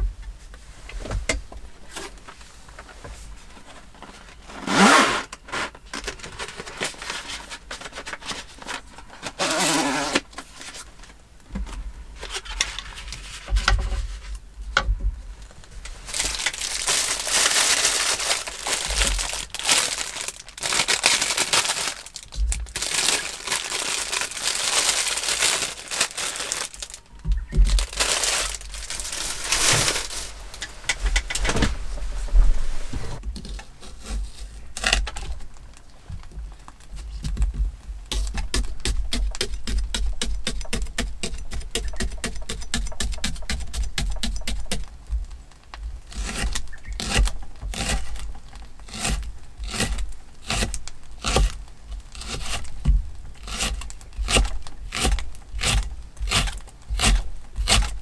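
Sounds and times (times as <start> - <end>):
plastic wrapping crinkling: 3.5 - 11.2, 15.4 - 30.8
paper carton tearing: 4.5 - 10.8, 16.1 - 27.0, 27.7 - 30.4.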